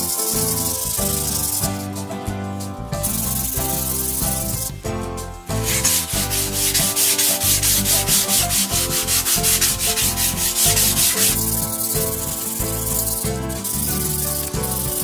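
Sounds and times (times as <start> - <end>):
background music: 0.0 - 15.0
sandpaper rubbing on foam: 5.6 - 15.0.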